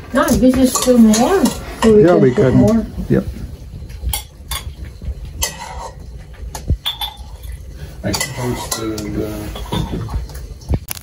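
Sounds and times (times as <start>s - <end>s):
metal ladle clinking against pot: 4.0s - 10.4s.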